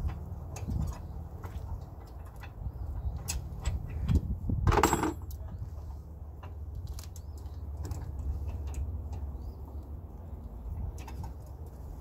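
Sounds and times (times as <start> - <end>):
metal clatter: 4.6 - 5.4.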